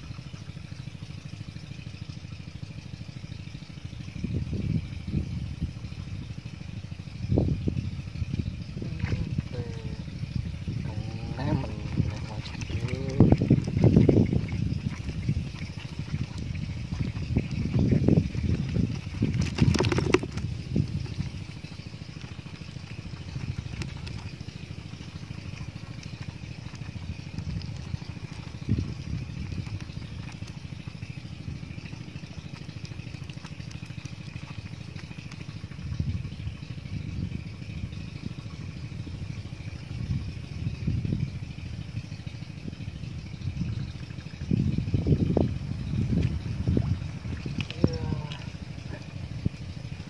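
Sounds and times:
small engine puttering: 0:00.0 - 0:50.0.

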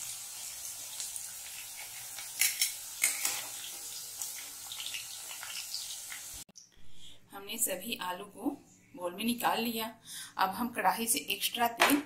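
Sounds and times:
hot oil sizzling: 0:00.0 - 0:06.5.

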